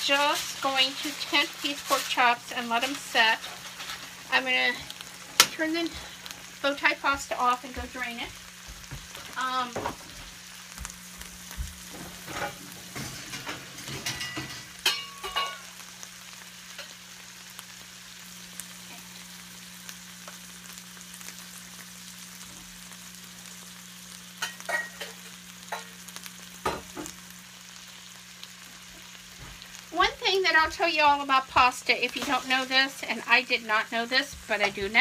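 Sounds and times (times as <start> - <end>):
pots and utensils clattering: 2.8 - 6.3, 12.0 - 15.7, 24.4 - 26.0.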